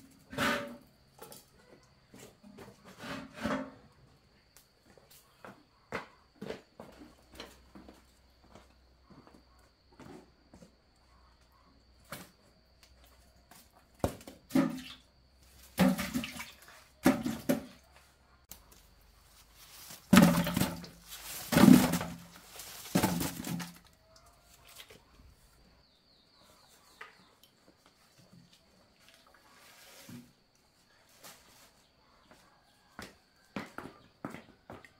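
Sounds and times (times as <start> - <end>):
water splashing and pouring: 15.7 - 17.5.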